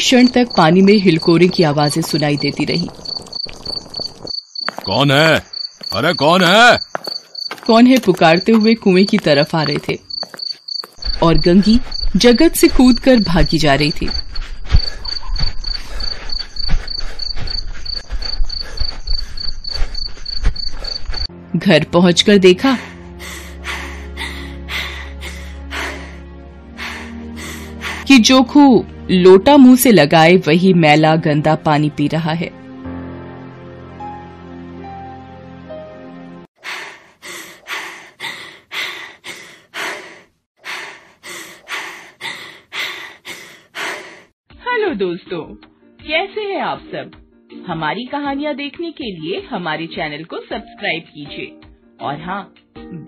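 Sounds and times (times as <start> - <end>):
crickets chirping: 0.0 - 21.3
running footsteps: 1.4 - 21.3.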